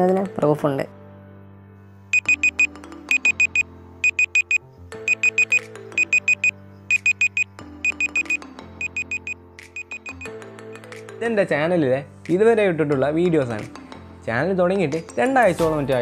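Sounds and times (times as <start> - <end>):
electronic beeping: 2.2 - 10.3.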